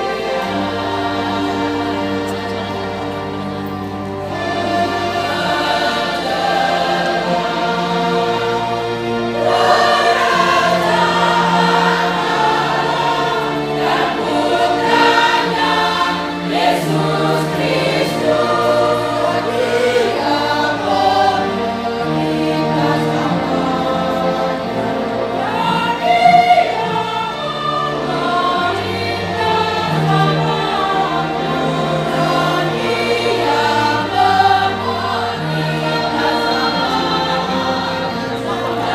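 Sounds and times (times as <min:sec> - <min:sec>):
choir singing: 0:00.0 - 0:38.9.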